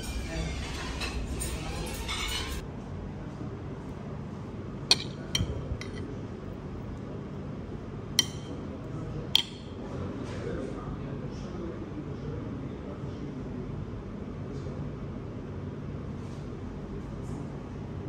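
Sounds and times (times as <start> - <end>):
metal spoon clinking on plate: 0.0 - 2.6, 4.9 - 6.1, 8.2 - 8.6, 9.4 - 9.8.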